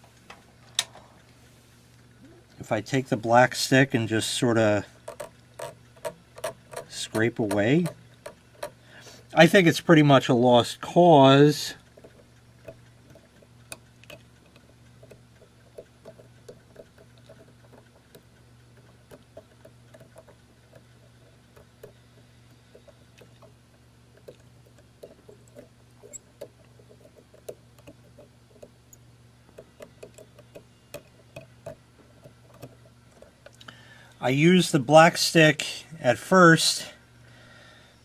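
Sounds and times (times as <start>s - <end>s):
low steady hum: 0.0s - 38.0s
plastic tool scraping metal contacts: 5.0s - 8.8s, 11.9s - 33.7s.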